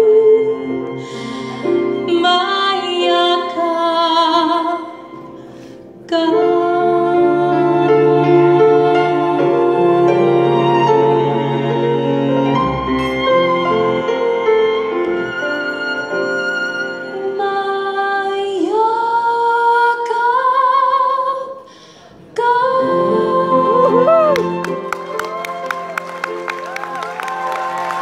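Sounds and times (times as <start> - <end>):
woman singing a ballad: 0.0 - 5.0, 6.0 - 10.6, 17.1 - 24.8
strings: 0.0 - 18.0
piano: 0.0 - 28.0.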